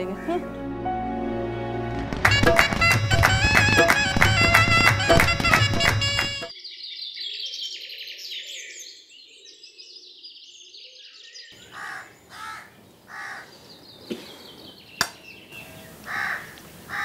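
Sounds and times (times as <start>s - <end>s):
background music: 0.0s - 6.5s
small birds chirping: 6.5s - 17.0s
crows cawing: 11.6s - 13.5s, 16.0s - 17.0s
low outdoor hiss: 14.7s - 17.0s.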